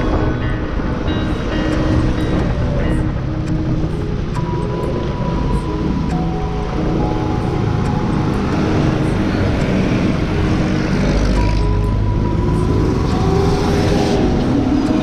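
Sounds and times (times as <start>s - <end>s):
background music: 0.0s - 15.0s
wind and road noise: 0.0s - 15.0s.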